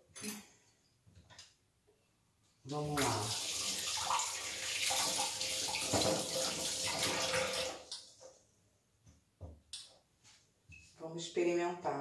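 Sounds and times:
water running from a tap: 0:02.8 - 0:08.0.

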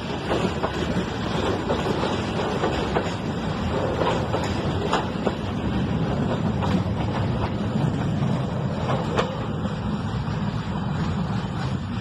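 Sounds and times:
wheel clicks over rail joints: 0:00.0 - 0:09.5
freight train wagons rumbling: 0:00.0 - 0:12.0.

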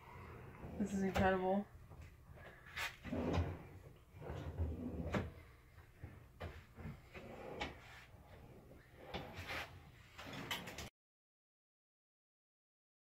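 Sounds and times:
cabinet drawers opening and shutting: 0:00.6 - 0:01.4, 0:02.0 - 0:10.9
drawer runners rumbling: 0:03.0 - 0:10.9.

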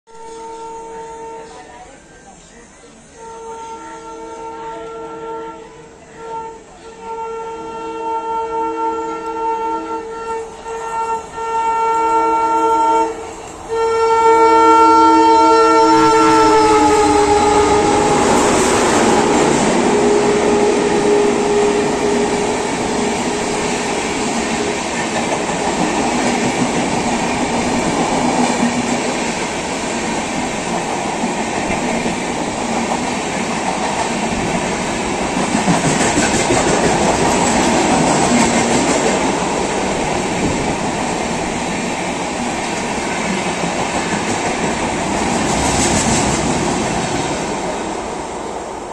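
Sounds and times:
train wheels rumbling on rails: 0:12.6 - 0:48.9.

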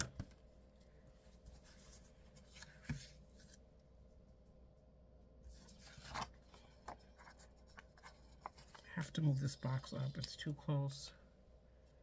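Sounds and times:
paper pages rustling: 0:01.2 - 0:03.7, 0:05.5 - 0:10.5.

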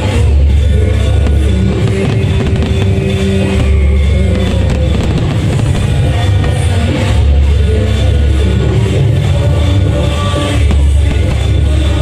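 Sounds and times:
loud music with heavy bass and drums: 0:00.0 - 0:12.0.

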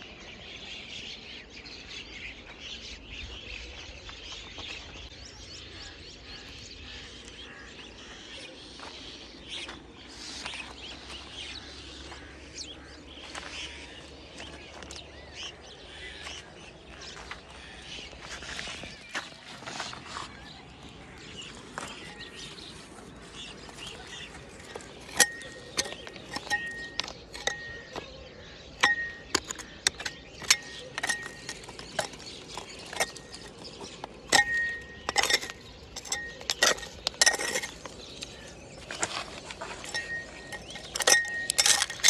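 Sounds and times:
knife scraping stony soil: 0:23.4 - 0:28.1, 0:28.8 - 0:42.0.

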